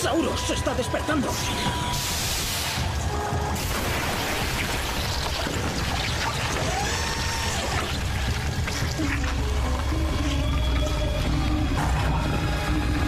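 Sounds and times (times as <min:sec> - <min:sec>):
watery rushing and bubbling: 0:03.6 - 0:10.9.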